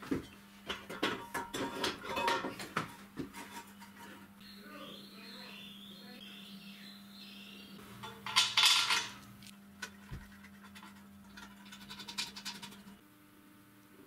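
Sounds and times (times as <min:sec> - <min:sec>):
metallic scraping rattle: 0:09.8 - 0:13.0.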